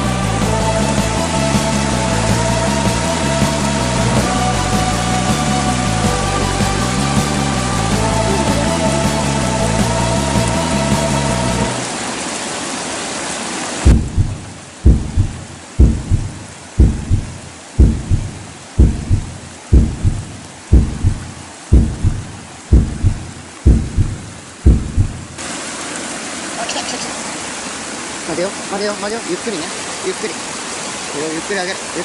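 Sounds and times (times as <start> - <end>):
stream rushing over a weir: 10.1 - 32.0
heartbeat sound effect: 13.9 - 25.4.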